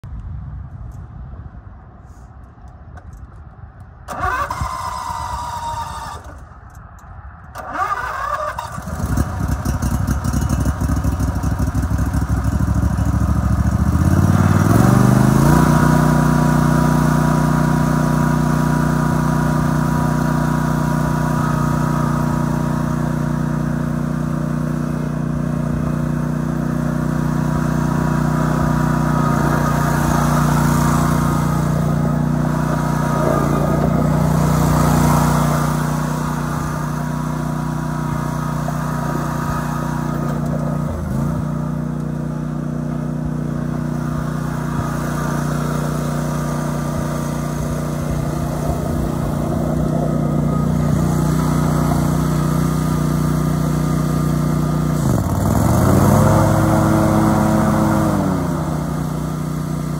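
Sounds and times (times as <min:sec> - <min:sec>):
starter motor cranking: 0:04.1 - 0:06.4, 0:07.5 - 0:10.9
mower engine running: 0:04.1 - 0:06.6, 0:07.5 - 0:59.9.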